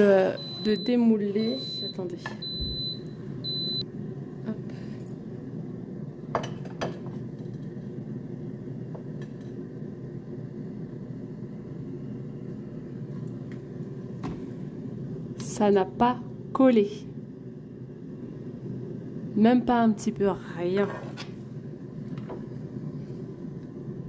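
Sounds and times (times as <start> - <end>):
low hum: 7.0 - 20.6.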